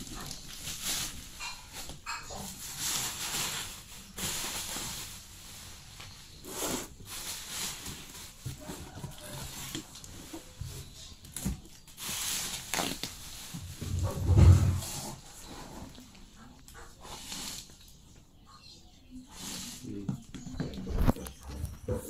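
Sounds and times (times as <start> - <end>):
plastic packaging crinkling: 0.0 - 14.1.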